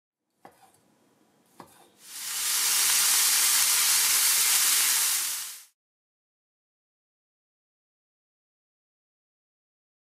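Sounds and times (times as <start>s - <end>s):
knife cutting on wooden board: 1.5s - 2.0s
food sizzling in a pan: 2.0s - 5.8s.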